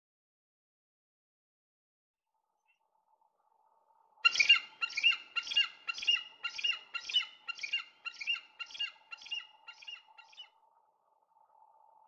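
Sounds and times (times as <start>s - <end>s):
eagle chicks calling: 4.3s - 10.4s.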